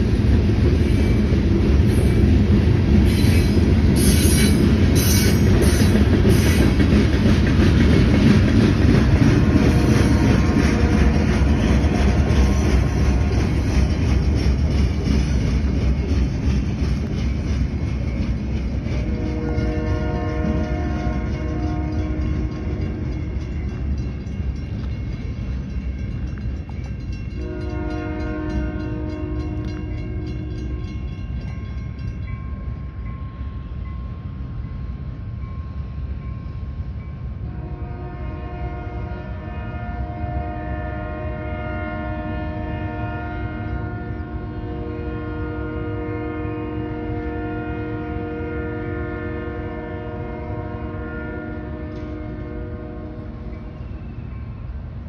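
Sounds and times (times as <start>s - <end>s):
locomotive air horn: 9.4s - 13.7s, 19.0s - 22.8s, 27.4s - 30.4s, 37.5s - 53.5s.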